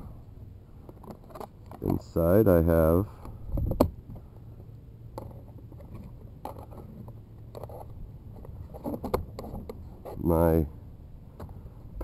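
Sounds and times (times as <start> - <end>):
low steady rumble: 0.0 - 12.0
rustling of cable: 5.1 - 10.3.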